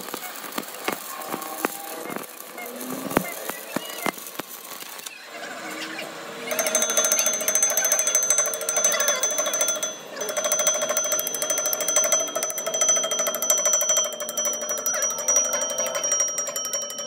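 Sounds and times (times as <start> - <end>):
steady ringing tone: 6.4 - 17.0.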